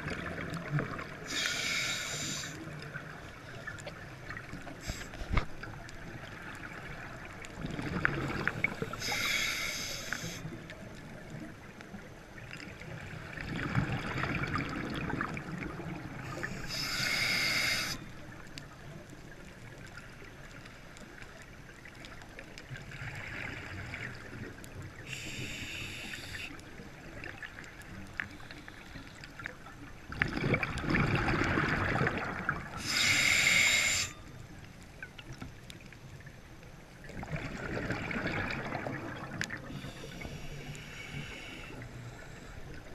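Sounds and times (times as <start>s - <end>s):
regulator inhale hiss: 1.2s - 2.7s, 4.7s - 5.4s, 8.5s - 10.6s, 16.2s - 18.2s, 25.0s - 26.7s, 32.7s - 34.3s, 39.6s - 42.9s
underwater exhale bubbling: 6.6s - 10.6s, 30.1s - 34.2s, 37.0s - 42.9s.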